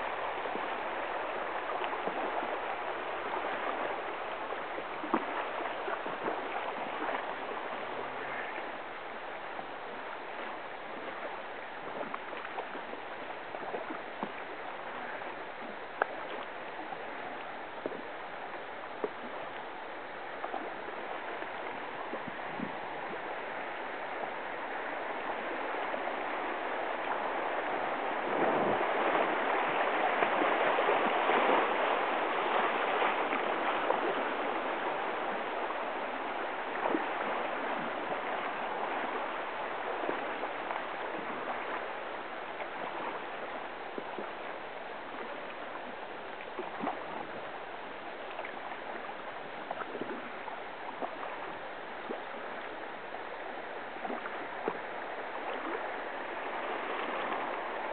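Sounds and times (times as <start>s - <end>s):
river water rushing and gurgling: 0.0s - 57.9s.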